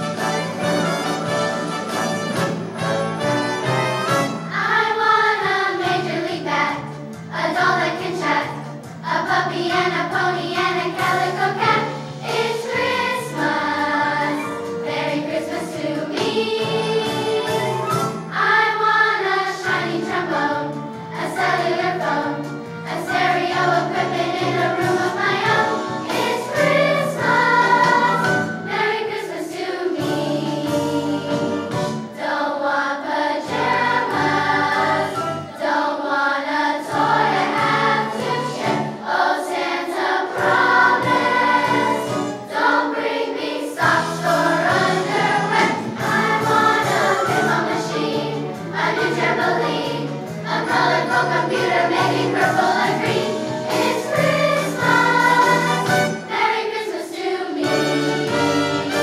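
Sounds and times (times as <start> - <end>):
instrumental accompaniment with bass line: 0.0 - 19.1, 19.7 - 29.0, 40.4 - 42.8, 43.8 - 56.5
children's choir singing: 0.0 - 59.0.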